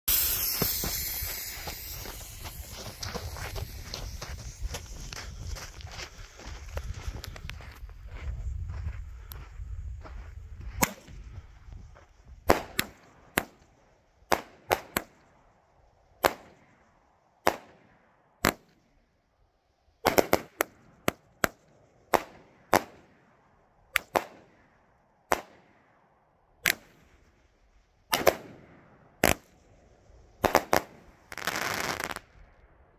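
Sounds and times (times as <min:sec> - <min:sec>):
fireworks banging: 0:00.1 - 0:05.1, 0:30.4 - 0:32.2.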